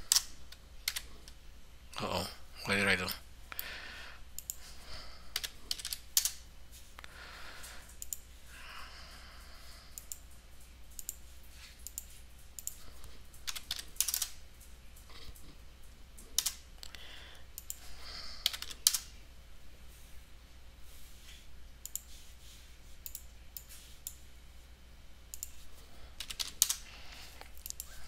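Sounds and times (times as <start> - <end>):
computer keyboard typing: 0.0 - 1.4, 5.3 - 6.4, 11.0 - 14.7, 17.6 - 19.1, 26.2 - 26.8
mouse clicks: 4.4 - 4.6, 21.8 - 22.1, 23.0 - 24.2, 25.3 - 25.6.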